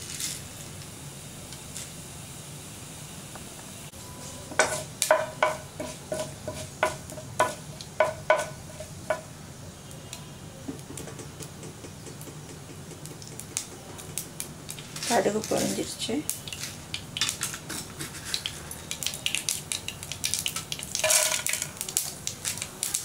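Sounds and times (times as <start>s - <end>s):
seeds sizzling in hot oil: 0.0s - 23.0s
mustard seeds spluttering: 12.8s - 23.0s
spatula clicking on pan: 18.3s - 22.7s.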